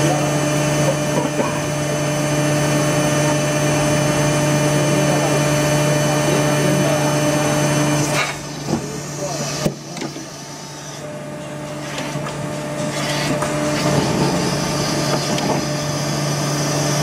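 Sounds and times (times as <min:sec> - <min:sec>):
machine low hum: 0:00.0 - 0:17.0.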